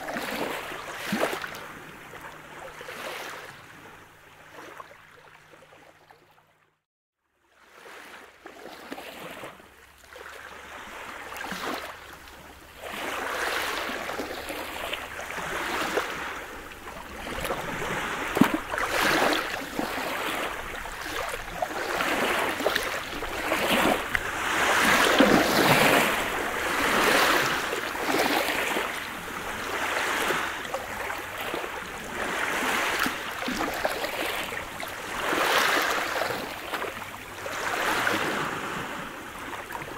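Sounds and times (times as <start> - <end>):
waves washing on pebble beach: 12.8 - 39.9.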